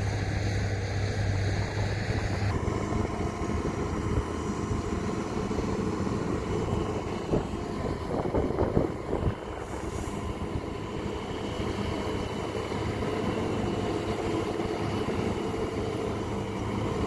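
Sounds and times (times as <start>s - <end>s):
diesel truck engine droning: 0.0s - 17.0s.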